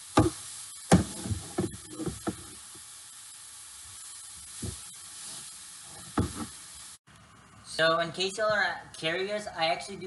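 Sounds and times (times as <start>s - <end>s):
meat sizzling in a skillet: 0.0s - 7.0s.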